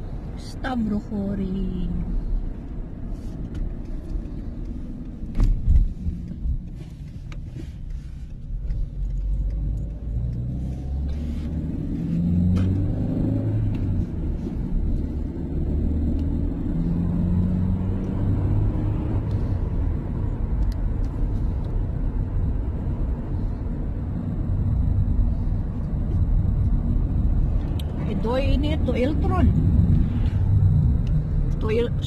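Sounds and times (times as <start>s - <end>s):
car engine hum and road noise: 0.0s - 32.0s.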